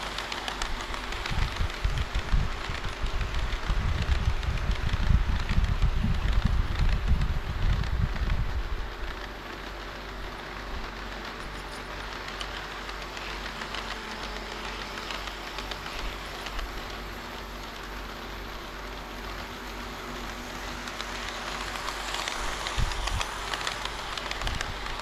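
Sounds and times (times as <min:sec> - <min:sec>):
model train wheels rattling: 0:00.0 - 0:25.0.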